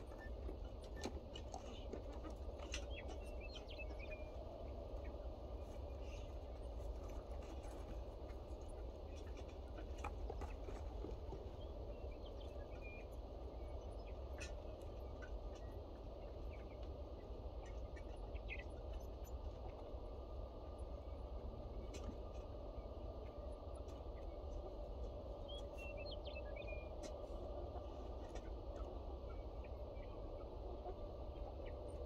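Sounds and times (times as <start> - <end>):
birds chirping and calling: 0.0 - 19.8.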